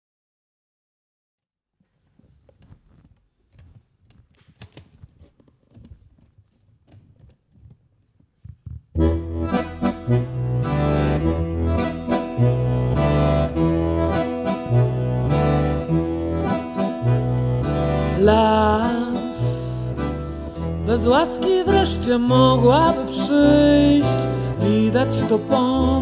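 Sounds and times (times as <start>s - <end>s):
shuffles and small knocks: 1.8s - 9.0s
accordion playing chords: 9.0s - 26.0s
acoustic guitar playing: 9.0s - 26.0s.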